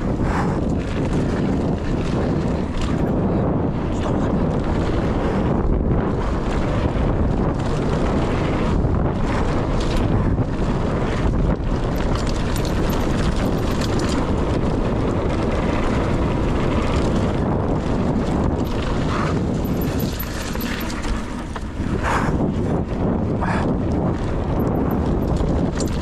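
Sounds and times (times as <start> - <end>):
tyres rumbling over dirt trail: 0.0 - 26.0
wind buffeting microphone: 0.0 - 26.0
short rattles: 11.7 - 14.6, 18.2 - 22.2, 24.2 - 26.0.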